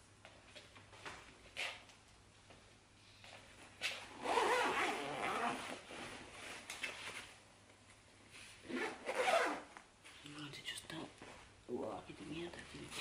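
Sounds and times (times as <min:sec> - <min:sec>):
fabric rustling: 0:03.3 - 0:10.2
zipper rasping open: 0:04.1 - 0:05.8, 0:08.7 - 0:09.7.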